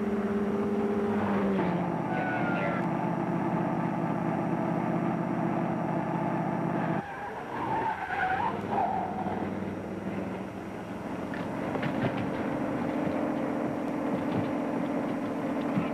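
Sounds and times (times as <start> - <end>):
tires squealing: 0.0 - 3.0, 6.6 - 15.9
car engine running hard: 0.0 - 15.9.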